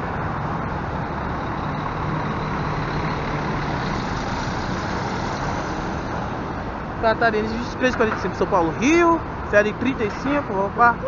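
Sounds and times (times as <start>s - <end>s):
bus engine droning past: 0.0s - 7.7s.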